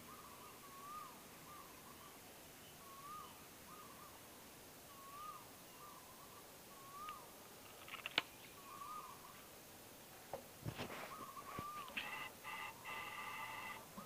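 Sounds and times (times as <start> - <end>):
bird calling: 2.8 - 4.2, 4.9 - 7.3, 8.2 - 9.4, 10.8 - 14.0.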